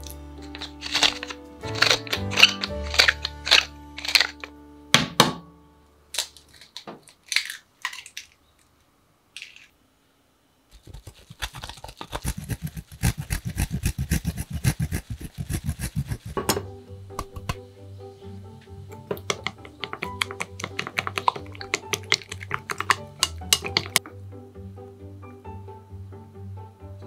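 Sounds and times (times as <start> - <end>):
background music: 0.0 - 6.6, 15.5 - 27.0
cheese grating on metal grater: 0.4 - 4.5, 10.7 - 16.4.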